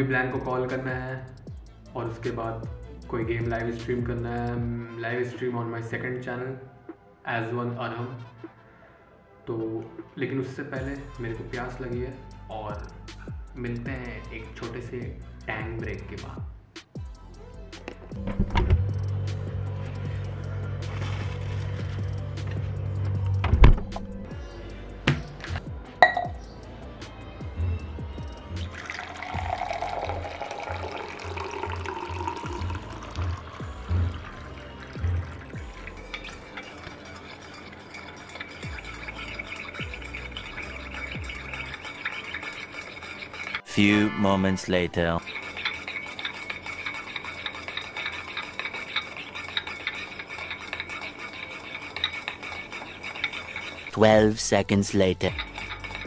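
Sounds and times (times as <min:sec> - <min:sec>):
background music with steady beat: 0:00.0 - 0:56.0
high ringing tone: 0:26.0 - 0:26.4
water pouring into tumbler: 0:28.6 - 0:43.6.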